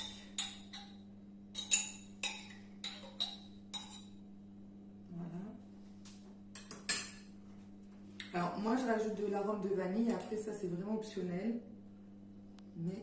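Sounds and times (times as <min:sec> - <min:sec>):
steady low hum: 0:00.0 - 0:13.0
utensil clinking against bowl: 0:01.6 - 0:04.2.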